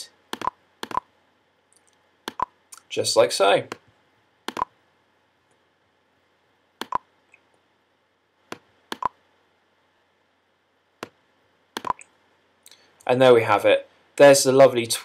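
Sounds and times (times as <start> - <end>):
mouse button clicking: 0.4 - 1.1, 6.8 - 7.0, 8.5 - 9.2, 11.8 - 12.1.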